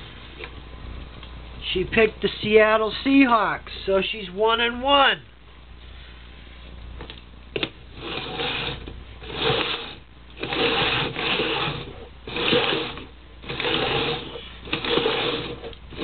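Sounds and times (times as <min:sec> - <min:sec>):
plastic cups scraping on wood floor: 0:07.6 - 0:16.0.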